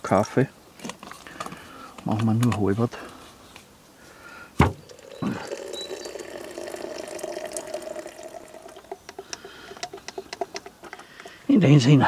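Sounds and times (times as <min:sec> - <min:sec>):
water pouring into metal pot: 0:04.8 - 0:10.3.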